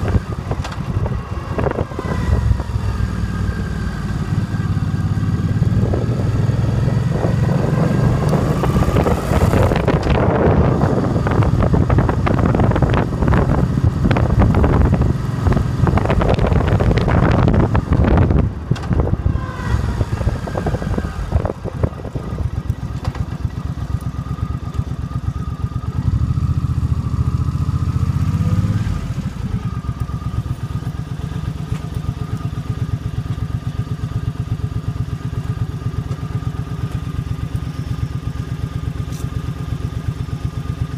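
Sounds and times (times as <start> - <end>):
wind rushing over microphone: 0.0 - 3.5, 5.2 - 22.7
motorcycle engine idling: 9.6 - 28.2, 29.0 - 40.9.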